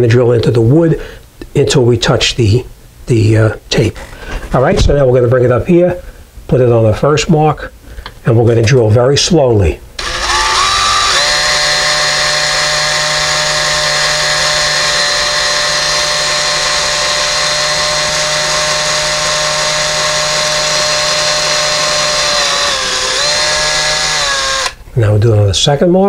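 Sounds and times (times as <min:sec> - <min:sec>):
cordless drill motor whine: 0:10.0 - 0:24.8.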